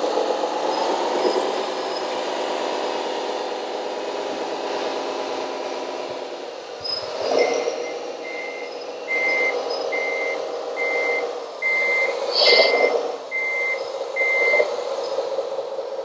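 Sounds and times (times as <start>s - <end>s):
simulated engine hum: 0.0s - 16.0s
reversing beeper short beeps: 7.4s - 14.7s.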